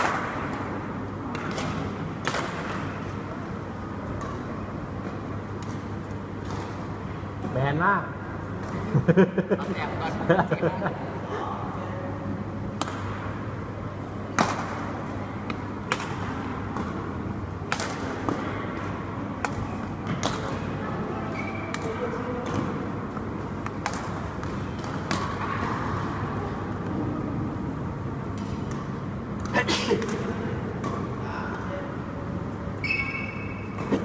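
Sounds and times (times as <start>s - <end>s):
rackets hitting shuttlecock: 0.0s - 3.1s, 4.0s - 7.5s, 12.7s - 13.4s, 14.3s - 26.2s, 28.2s - 31.2s, 32.8s - 34.0s
low hum in hall: 0.0s - 34.0s.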